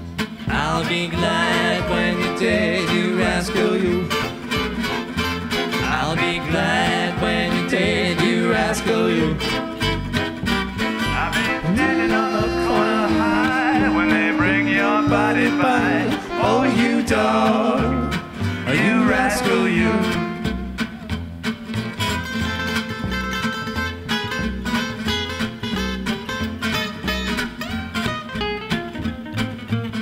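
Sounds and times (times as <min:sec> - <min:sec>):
acoustic guitars strumming: 0:00.0 - 0:30.0
plucked upright bass: 0:00.0 - 0:30.0
voices singing in harmony: 0:00.5 - 0:04.4, 0:05.9 - 0:09.6, 0:11.2 - 0:20.5.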